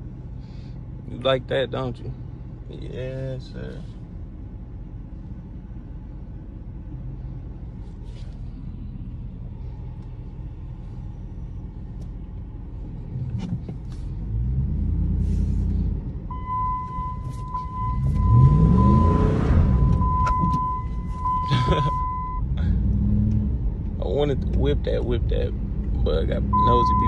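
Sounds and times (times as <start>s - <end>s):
truck engine rumbling: 0.0s - 27.0s
steady high beep: 16.3s - 22.5s, 26.5s - 27.0s.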